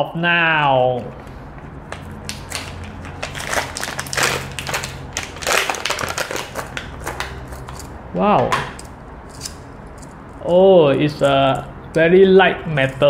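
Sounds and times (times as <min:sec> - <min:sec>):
plastic packaging ripping open: 0:02.2 - 0:07.9.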